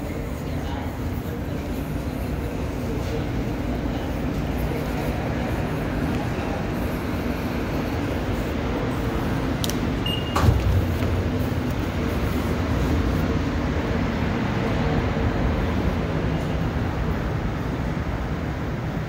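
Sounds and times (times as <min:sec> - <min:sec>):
low rumble of trains and ventilation: 0:00.0 - 0:19.0
turnstile clunk: 0:09.6 - 0:11.2
fare gate beep: 0:10.0 - 0:10.6.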